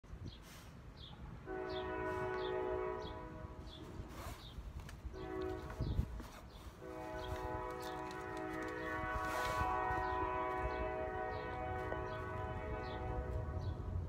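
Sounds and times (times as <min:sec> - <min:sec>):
horn sounding chord blasts: 0:06.9 - 0:13.9.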